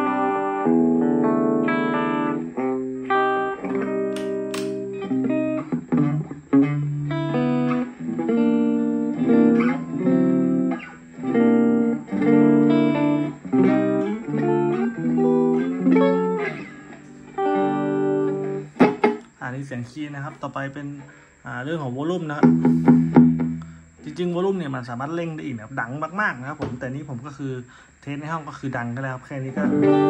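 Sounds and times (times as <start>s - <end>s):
clean electric guitar chords: 0.0s - 19.4s, 22.4s - 24.1s, 29.6s - 30.0s.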